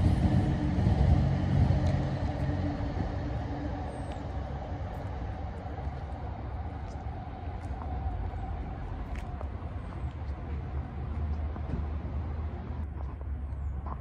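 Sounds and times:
diesel engine idling: 0.0s - 6.4s.

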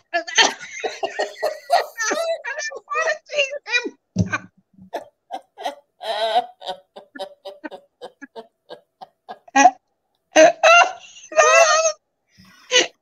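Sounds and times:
women laughing hard: 0.2s - 3.1s, 4.9s - 12.0s.

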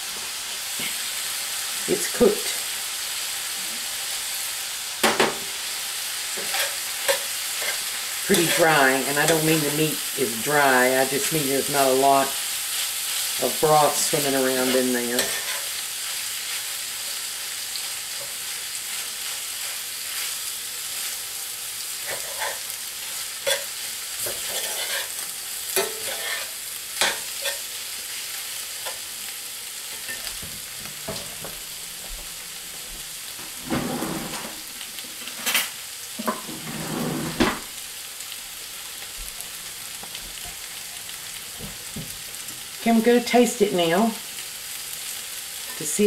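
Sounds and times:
filling sizzling in a skillet: 0.0s - 46.0s
metal spoon scraping iron skillet: 6.4s - 9.7s, 13.2s - 15.8s, 22.0s - 22.8s, 23.4s - 27.7s.

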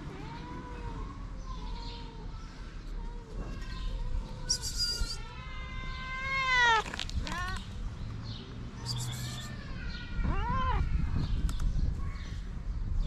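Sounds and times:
cat meowing: 4.0s - 7.6s, 8.9s - 11.1s.

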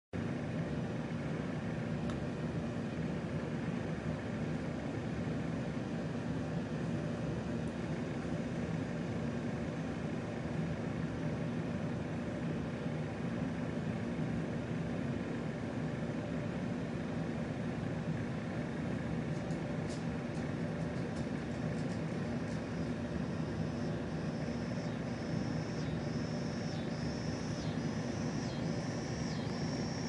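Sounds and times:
faint hum: 0.2s - 30.0s.

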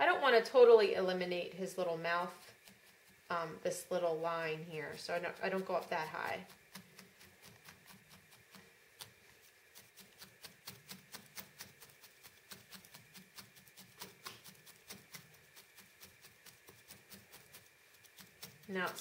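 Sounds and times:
felting needle stabbing wool: 4.9s - 19.0s.

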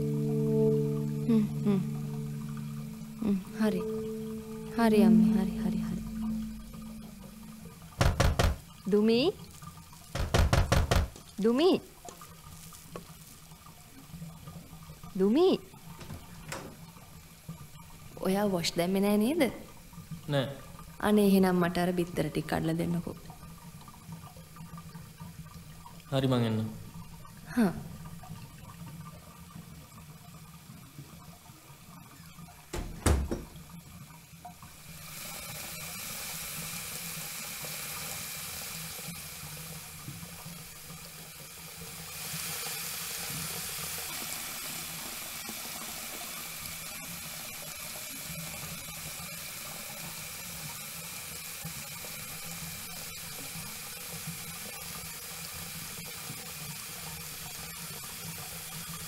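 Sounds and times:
tap water running: 0.0s - 59.0s
sharp knock: 8.0s - 8.6s, 10.2s - 11.2s.

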